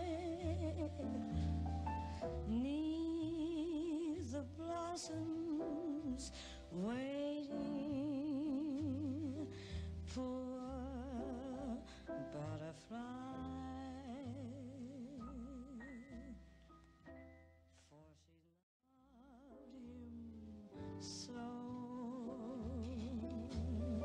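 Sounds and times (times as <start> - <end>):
woman singing a ballad: 0.0 - 1.4, 2.4 - 16.4, 19.1 - 24.0
soft accompaniment: 19.6 - 24.0.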